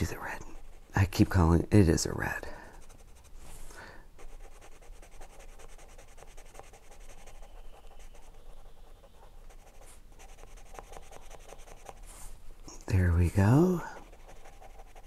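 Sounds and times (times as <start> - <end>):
pencil scratching on paper: 0.0 - 1.3, 2.7 - 3.6, 4.2 - 12.4, 13.5 - 15.0.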